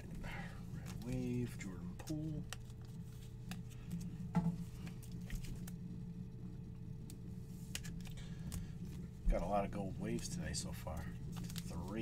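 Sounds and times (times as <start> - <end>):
steady low hum: 0.0 - 12.0
cards clicking and rustling: 10.1 - 12.0.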